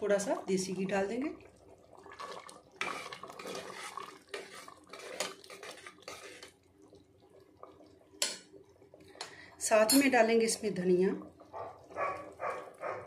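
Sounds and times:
wet sloshing curry: 1.3s - 9.2s
spoon scraping and clinking in pot: 2.8s - 6.5s.

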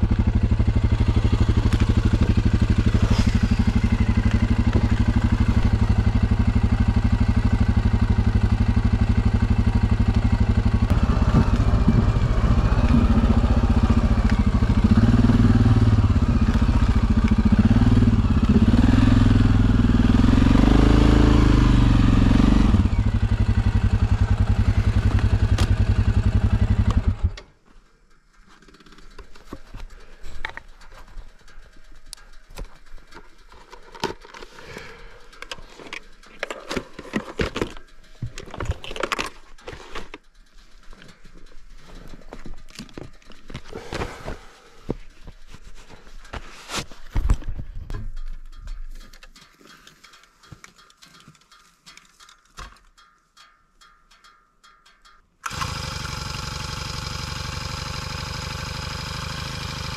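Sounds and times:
engine running: 0.0s - 49.6s, 55.4s - 59.9s
knocks and clatter: 35.4s - 40.3s, 46.0s - 55.3s.

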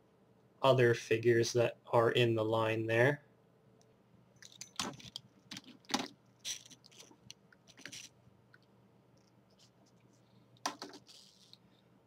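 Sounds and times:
plastic toys clicking and scraping: 4.4s - 8.1s, 10.6s - 11.6s.

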